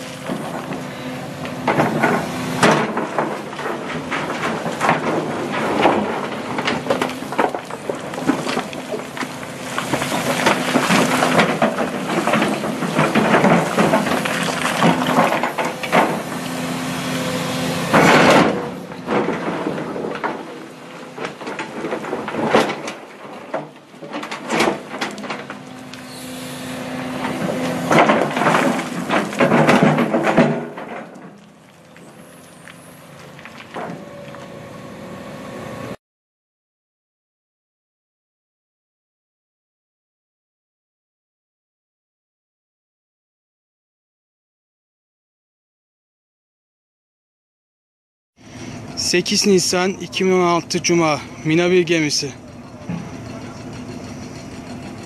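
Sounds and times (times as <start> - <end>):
excavator engine running: 0.0 - 36.0, 48.4 - 55.0
bucket scraping: 1.6 - 34.5
rocks clattering against steel: 1.7 - 16.4, 17.9 - 25.6, 27.2 - 31.6
loud crash: 17.8 - 20.6.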